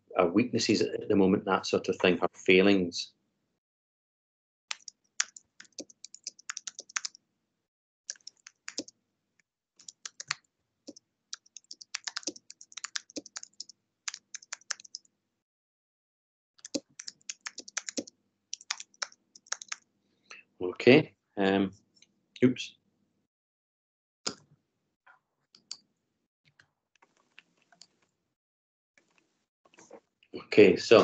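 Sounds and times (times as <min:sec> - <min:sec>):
typing on computer keyboard: 0:04.7 - 0:07.2, 0:08.1 - 0:08.9, 0:09.8 - 0:15.1, 0:16.6 - 0:19.8.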